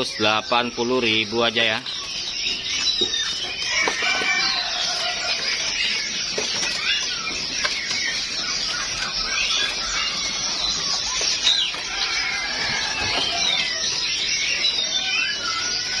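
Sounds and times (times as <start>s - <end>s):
songbirds chirping: 0.0s - 16.0s.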